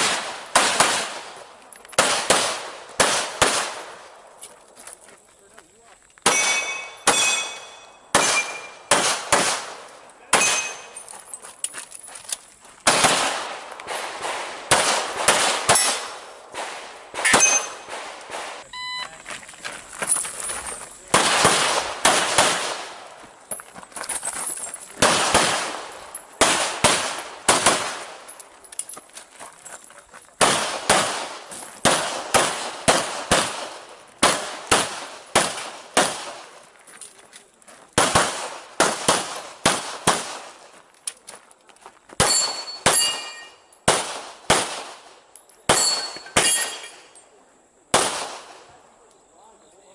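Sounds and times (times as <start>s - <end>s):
pistol shots: 0.0s - 4.2s, 6.2s - 11.0s, 12.8s - 18.6s, 21.1s - 23.2s, 25.0s - 28.3s, 30.4s - 36.5s, 38.0s - 40.6s, 42.2s - 45.1s, 45.7s - 47.0s, 47.9s - 48.7s
steel targets ringing: 6.3s - 8.9s, 10.3s - 11.1s, 17.2s - 18.0s, 42.2s - 43.8s, 45.7s - 47.2s.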